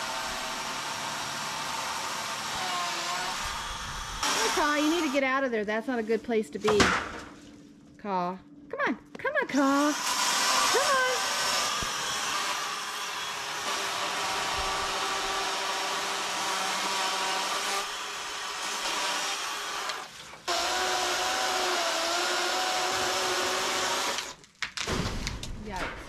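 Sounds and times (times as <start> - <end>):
electric chainsaw cutting wood: 0.0 - 5.3, 9.6 - 24.4.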